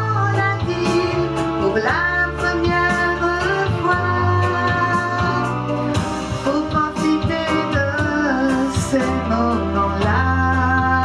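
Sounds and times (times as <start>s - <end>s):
woman singing into a microphone: 0.0s - 5.6s, 6.4s - 11.0s
backing music: 0.0s - 11.0s.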